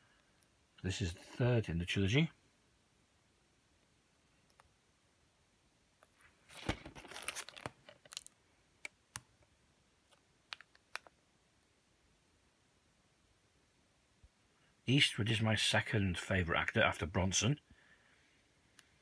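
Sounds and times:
plastic sleeve crinkling: 0:06.0 - 0:08.9.

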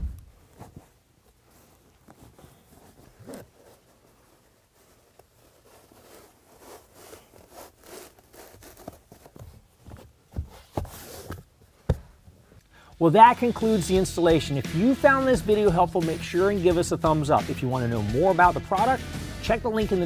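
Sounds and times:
fabric seat covers rustling: 0:00.0 - 0:12.6.

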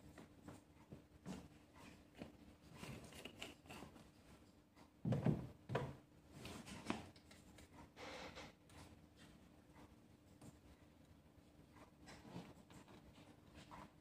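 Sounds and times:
plastic tongs scraping a bowl: 0:02.6 - 0:04.0.

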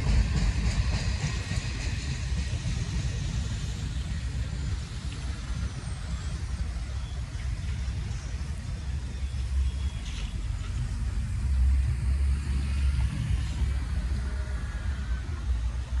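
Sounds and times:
cars driving past: 0:09.6 - 0:16.0.

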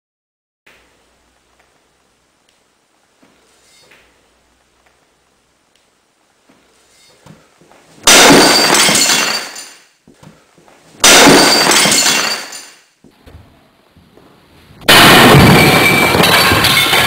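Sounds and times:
crowbar smashing porcelain toilet: 0:08.0 - 0:09.8, 0:11.0 - 0:12.7, 0:14.9 - 0:17.0.

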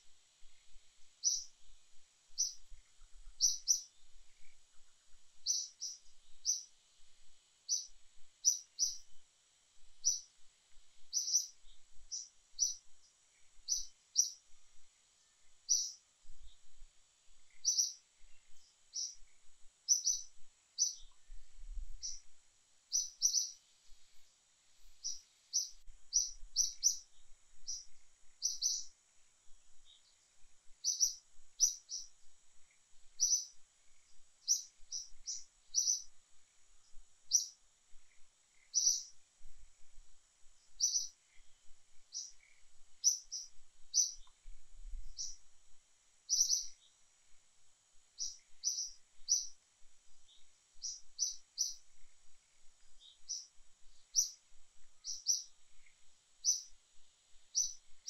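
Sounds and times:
faint high hiss: 0:00.0 - 0:58.0
bird chirping: 0:00.4 - 0:06.8, 0:07.6 - 0:09.2, 0:10.0 - 0:29.0, 0:29.7 - 0:39.2, 0:40.6 - 0:45.5, 0:46.3 - 0:47.0, 0:48.2 - 0:56.8, 0:57.4 - 0:58.0.

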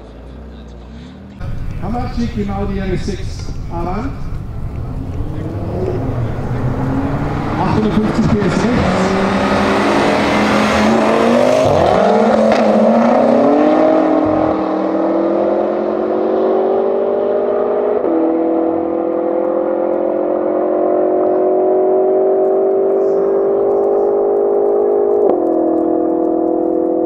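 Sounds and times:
cars accelerating at full throttle: 0:03.0 - 0:27.0.

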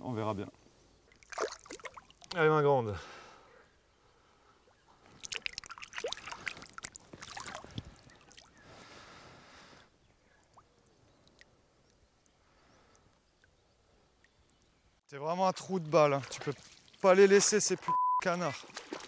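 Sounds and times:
fish splashing in water: 0:01.1 - 0:02.3, 0:05.1 - 0:08.5, 0:18.6 - 0:19.0.

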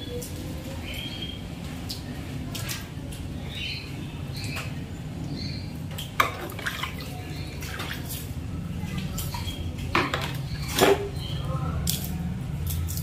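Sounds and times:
water splashing and dripping: 0:00.0 - 0:13.0
mug scooping water from bucket: 0:06.0 - 0:08.4.

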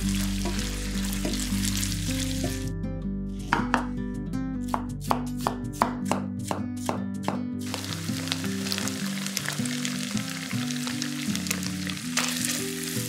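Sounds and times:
chicken sizzling in frying pan: 0:00.0 - 0:02.6, 0:07.6 - 0:13.0.

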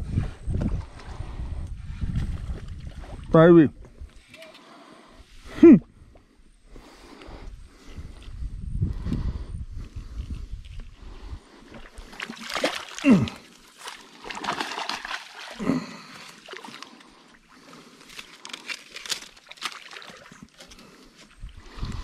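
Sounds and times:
fish splashing in water: 0:12.0 - 0:20.7.

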